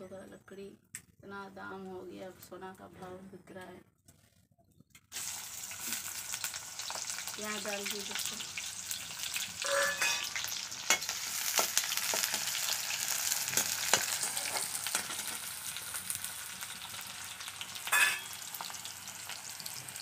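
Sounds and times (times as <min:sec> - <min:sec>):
onion sizzling in hot oil: 0:05.1 - 0:20.0
metal spatula scraping pan: 0:09.6 - 0:11.2, 0:17.9 - 0:18.4.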